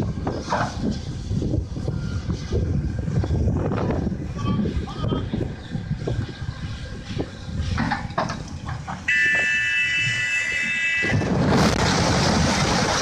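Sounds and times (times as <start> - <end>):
excavator engine rumble: 0.0 - 13.0
high steady warning horn: 9.1 - 11.2
loud rushing noise: 10.1 - 13.0.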